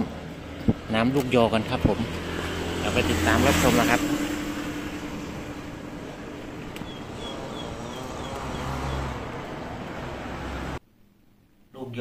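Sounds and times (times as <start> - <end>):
bird chirping: 6.6 - 9.2.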